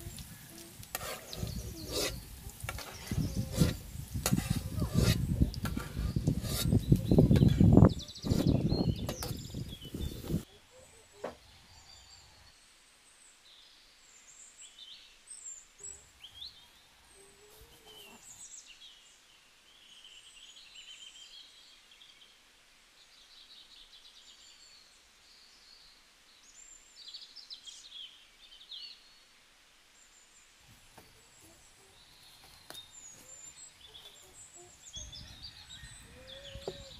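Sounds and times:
small birds chirping: 0.0s - 22.4s, 30.0s - 36.9s.

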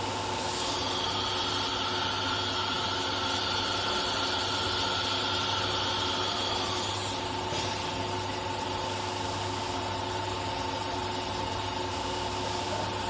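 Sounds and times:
cnc router machine hum: 0.0s - 7.5s.

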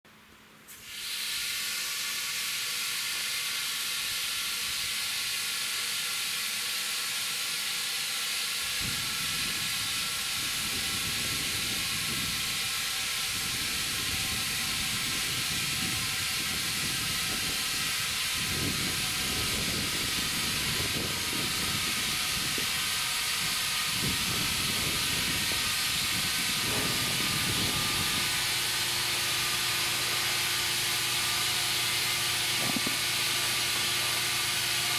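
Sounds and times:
compressed air hissing: 0.7s - 34.9s
low rumbling: 23.3s - 34.1s.

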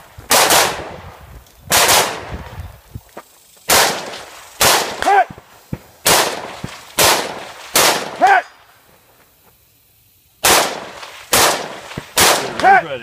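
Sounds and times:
rifle shots: 0.3s - 1.0s, 1.7s - 2.4s, 3.7s - 5.2s, 6.0s - 8.3s, 10.4s - 12.8s.

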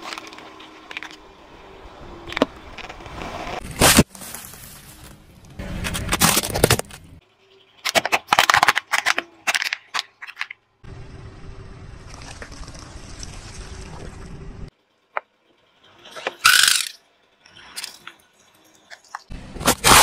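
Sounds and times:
crisp bag crackling and crunching: 3.6s - 7.0s
plastic toy cracking: 7.8s - 10.5s.

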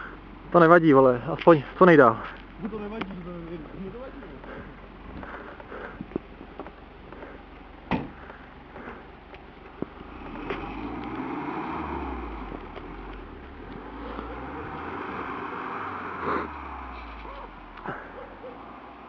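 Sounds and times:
engine running under load: 0.0s - 19.0s.

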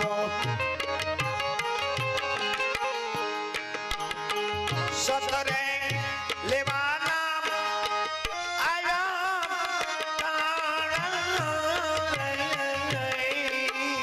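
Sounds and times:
man singing: 0.0s - 1.2s, 4.6s - 14.0s
harmonium chords: 0.0s - 14.0s.

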